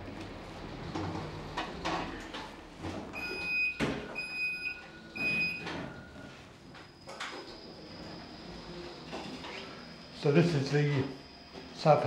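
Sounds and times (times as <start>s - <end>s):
lift beeper beeping: 3.2s - 8.9s.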